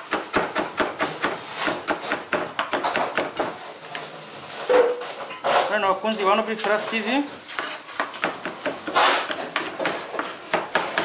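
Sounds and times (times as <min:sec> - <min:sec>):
knife chopping on plastic board: 0:00.0 - 0:03.6, 0:07.6 - 0:11.0.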